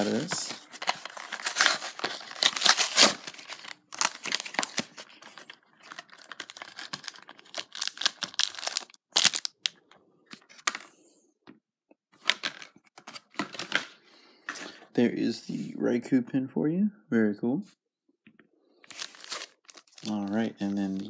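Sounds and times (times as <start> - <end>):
card tearing: 0.0 - 9.5
plastic packaging crackling: 0.0 - 9.8, 18.9 - 21.0.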